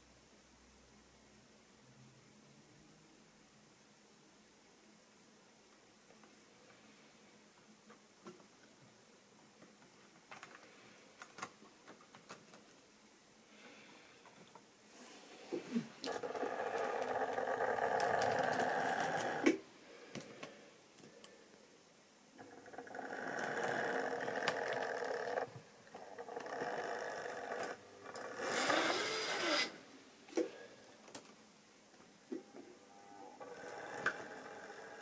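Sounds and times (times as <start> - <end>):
model train motor whirring: 16.1 - 19.5, 22.4 - 29.8.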